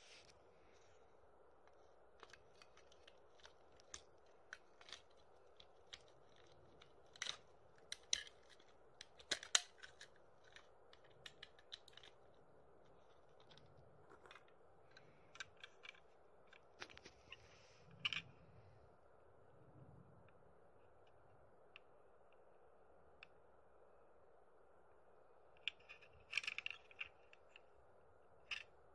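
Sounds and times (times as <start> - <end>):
plastic toy train pieces clicking: 2.2 - 17.4, 25.6 - 27.7, 28.4 - 28.8.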